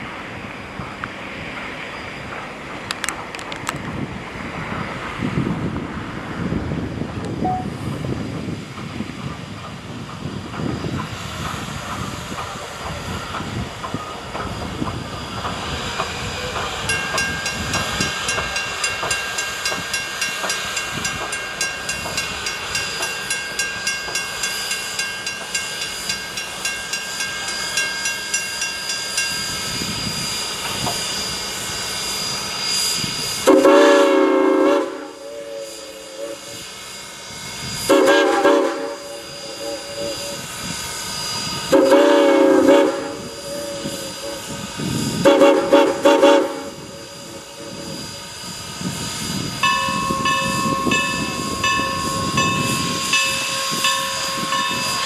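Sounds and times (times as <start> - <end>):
steam locomotive chuffing: 0.0 - 55.0
steam whistle: 32.2 - 55.0.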